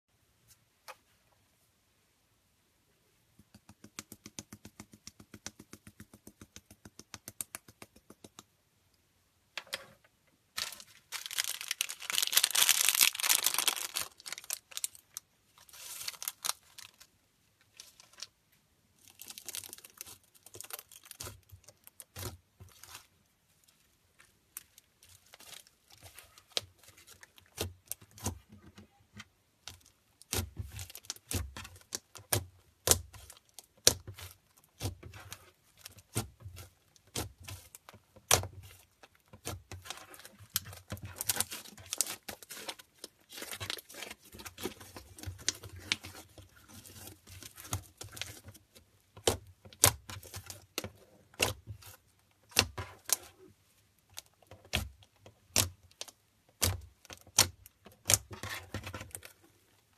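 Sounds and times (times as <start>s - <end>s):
hands squishing slime: 10.6s - 17.1s, 19.0s - 29.0s, 29.6s - 53.5s.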